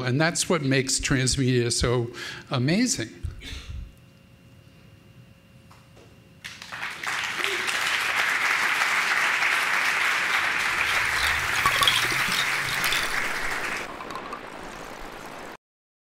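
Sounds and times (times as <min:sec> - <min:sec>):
audience applauding: 0:06.4 - 0:15.6.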